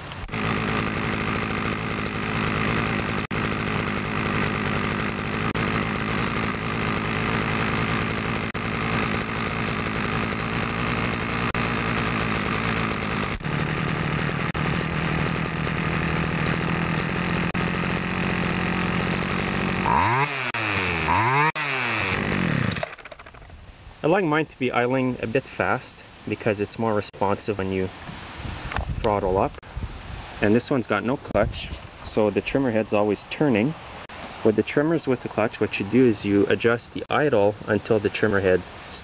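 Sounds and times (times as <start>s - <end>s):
string trimmer engine idling and revving: 0.0s - 23.5s.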